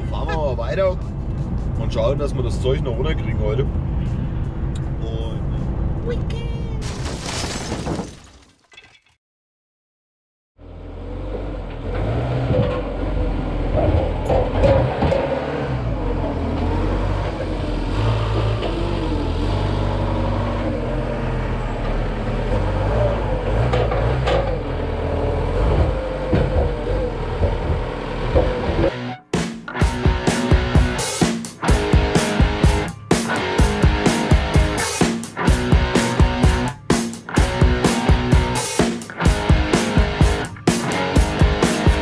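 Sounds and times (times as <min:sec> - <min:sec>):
forklift engine revving: 0:10.6 - 0:31.0.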